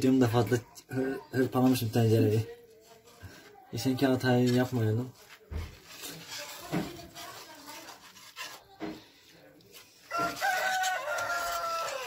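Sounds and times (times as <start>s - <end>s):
whisk scraping in a pan: 4.0s - 12.0s
rooster crowing: 10.1s - 12.0s.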